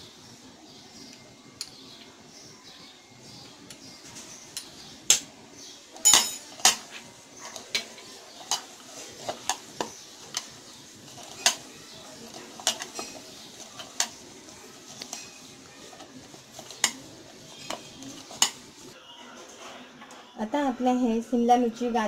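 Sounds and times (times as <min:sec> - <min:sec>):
metal bangles clinking on a bowl: 0:06.0 - 0:06.9, 0:12.4 - 0:14.2, 0:14.9 - 0:18.7.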